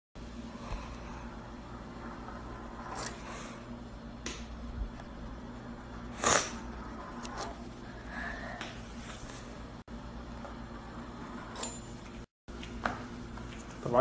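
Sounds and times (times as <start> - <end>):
steady low hum: 0.2 - 14.0
pastry wheel scraping dough: 0.5 - 3.7, 5.4 - 8.0.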